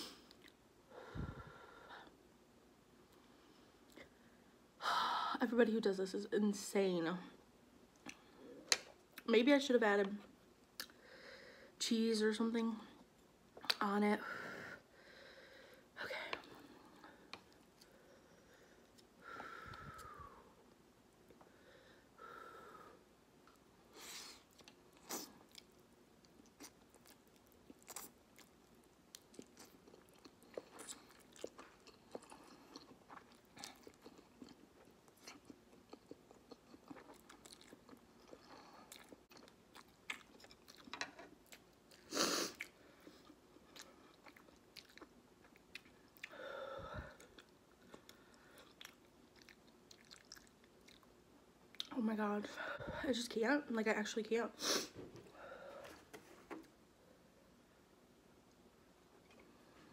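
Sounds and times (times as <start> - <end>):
chewing and slurping noodles: 29.2 - 46.3, 47.4 - 51.1.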